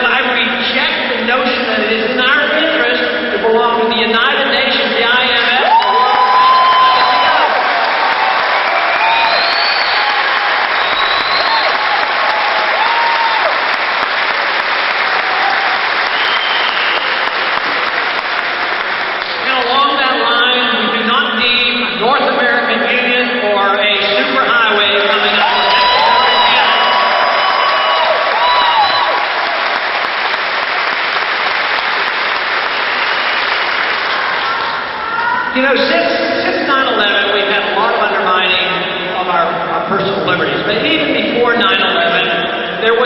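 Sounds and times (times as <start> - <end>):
audience applauding: 5.6 - 19.5, 25.4 - 35.3
crowd cheering: 5.6 - 19.6, 25.2 - 35.6.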